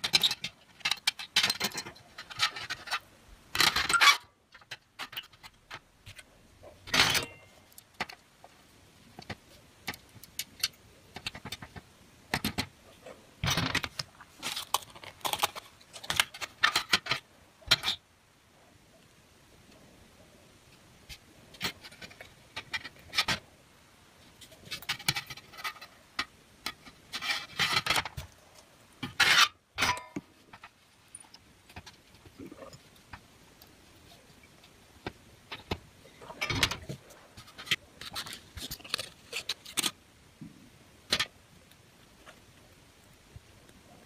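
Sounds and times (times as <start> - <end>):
circuit board handling clicks and rubs: 7.0 - 12.7.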